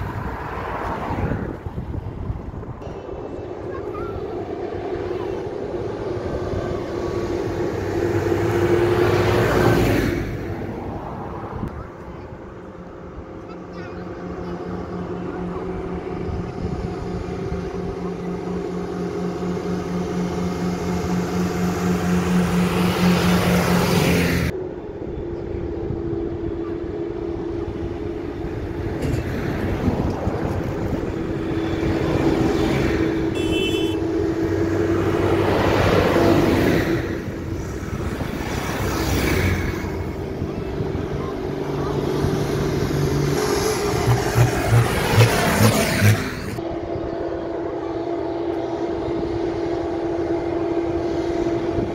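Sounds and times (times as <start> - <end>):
tractor diesel engines passing: 0.0 - 51.9.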